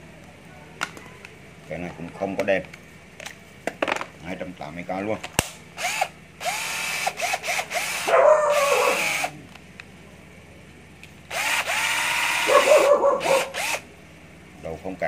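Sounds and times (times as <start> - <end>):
cordless drill motor whine: 5.8 - 9.3, 11.3 - 12.6, 13.2 - 13.8.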